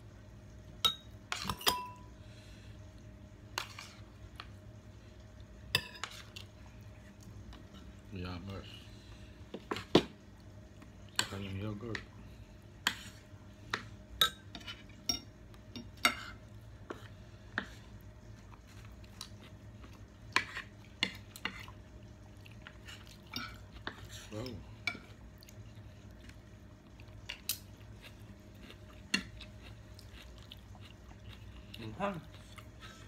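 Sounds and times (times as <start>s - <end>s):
cutlery clinking on plates: 0.9s - 2.0s.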